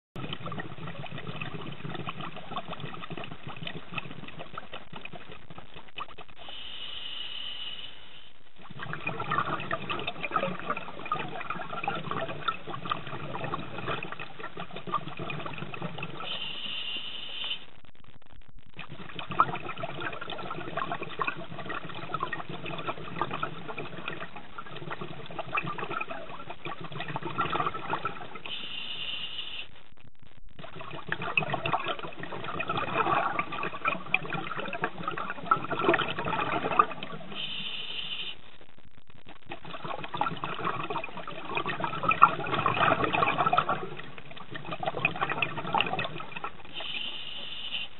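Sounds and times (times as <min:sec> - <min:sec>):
exhaled bubbles bubbling: 0:00.2 - 0:07.3, 0:08.1 - 0:47.9
diver inhaling through regulator: 0:06.4 - 0:08.3, 0:16.2 - 0:17.7, 0:28.5 - 0:29.7, 0:37.3 - 0:38.4, 0:46.7 - 0:47.9.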